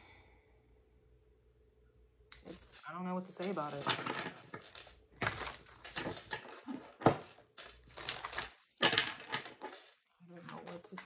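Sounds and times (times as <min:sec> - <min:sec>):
cards being shuffled: 0:03.3 - 0:11.0.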